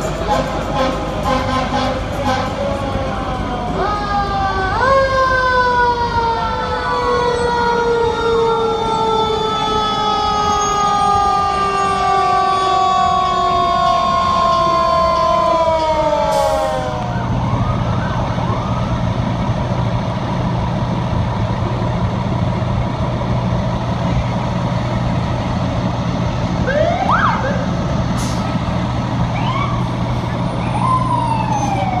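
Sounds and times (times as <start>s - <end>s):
fire truck engine running: 0.0s - 32.0s
fire truck sirens winding down: 0.0s - 32.0s
siren whoops: 3.5s - 19.4s, 26.6s - 27.7s, 29.3s - 32.0s.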